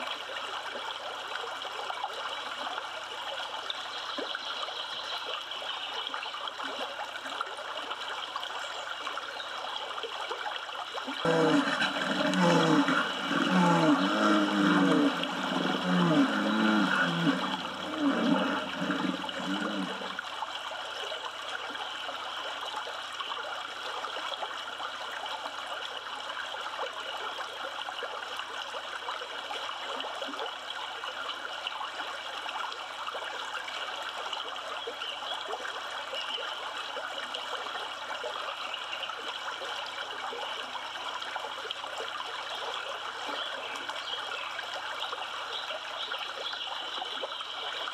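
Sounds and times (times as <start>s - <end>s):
river water flowing: 0.0s - 47.9s
low wavering calls: 11.2s - 20.2s.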